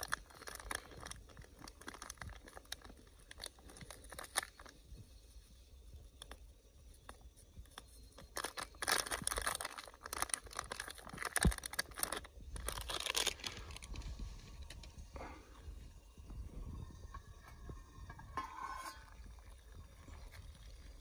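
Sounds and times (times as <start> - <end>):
plastic sachet crinkling: 0.0 - 4.8, 7.1 - 14.8.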